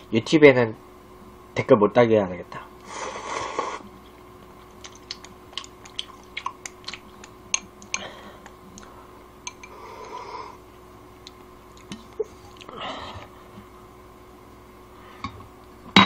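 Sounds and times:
person slurping noodles: 2.9 - 3.9
person chewing: 3.5 - 10.6, 11.2 - 13.3.

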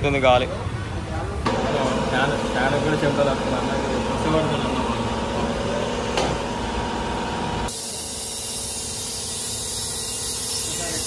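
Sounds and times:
workshop machine rumble: 0.5 - 11.0
air escaping from tyre bead: 7.7 - 11.0
compressed air hissing into tyre: 7.7 - 11.0.

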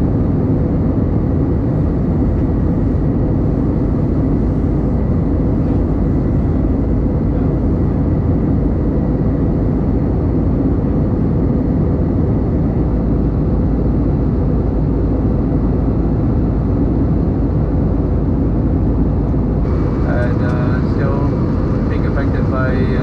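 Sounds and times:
jet engine and airflow roar: 0.0 - 23.0
low rumble: 0.0 - 23.0
faint steady hum: 17.0 - 23.0.

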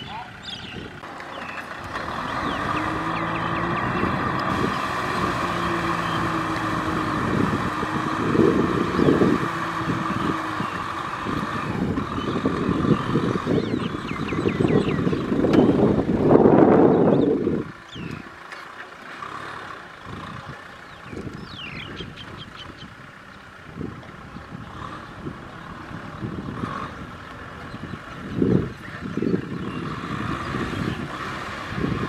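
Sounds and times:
tractor diesel engine running: 0.0 - 32.0
rotary tiller churning wet soil: 1.0 - 16.3.

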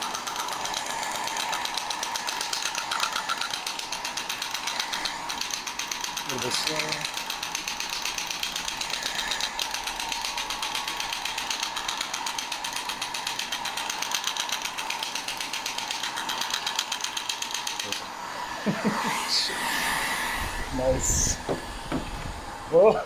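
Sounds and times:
shockwave handpiece clicking pulses: 0.0 - 18.0.

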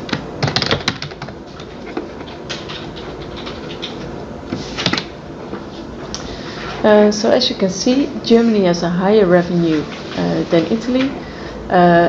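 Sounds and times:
keyboard and mouse clicks: 0.0 - 4.0
steady background hiss: 0.0 - 12.0.

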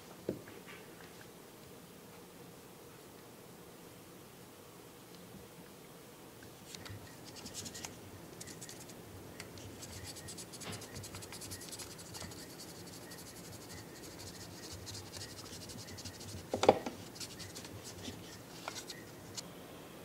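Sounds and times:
fingers scratching plastic: 7.2 - 8.9, 9.6 - 19.0.

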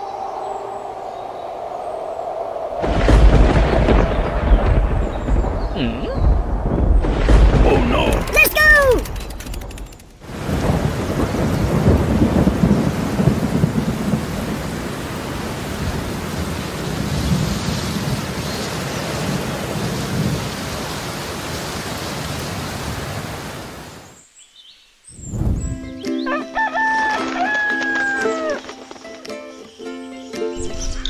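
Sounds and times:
rumbling thunder: 2.8 - 21.6
heavy rain falling: 2.8 - 24.2.

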